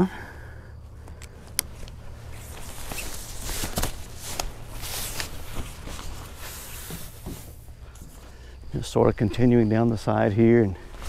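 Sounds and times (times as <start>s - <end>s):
nylon fabric rustling: 1.7s - 8.2s.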